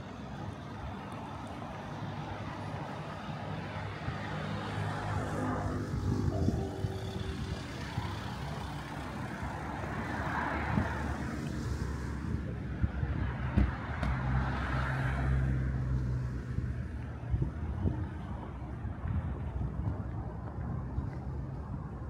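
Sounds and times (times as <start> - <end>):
low rumble of traffic: 0.0 - 22.0.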